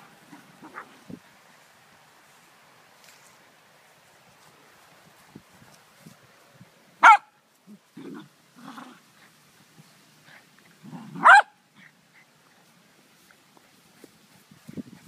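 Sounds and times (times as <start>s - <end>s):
puppy barking: 7.0s - 7.4s, 11.1s - 11.6s
dogs growling: 7.7s - 9.1s.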